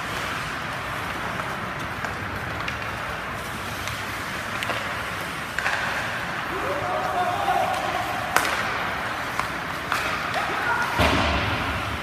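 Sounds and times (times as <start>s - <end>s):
skates on ice: 0.0s - 12.0s
sticks and puck clicking: 1.0s - 6.4s, 7.0s - 10.6s.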